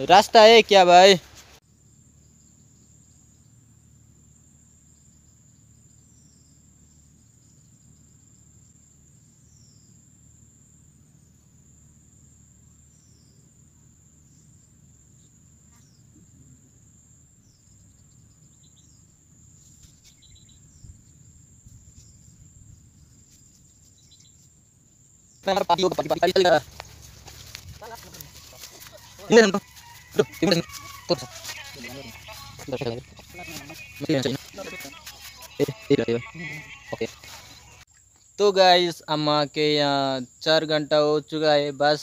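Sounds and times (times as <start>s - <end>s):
insects chirring: 0.0s - 42.0s
faint clicks and rustles: 26.6s - 29.3s.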